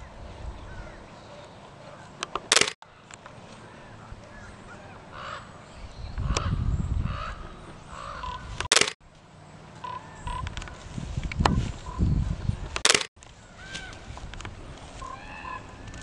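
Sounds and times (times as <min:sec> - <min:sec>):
birds cawing: 0:03.6 - 0:08.5, 0:15.0 - 0:16.0.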